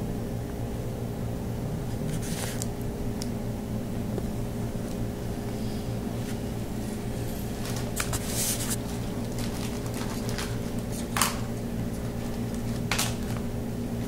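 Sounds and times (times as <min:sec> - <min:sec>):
low room hum: 0:00.0 - 0:14.0
rustling handling noises: 0:06.1 - 0:13.5.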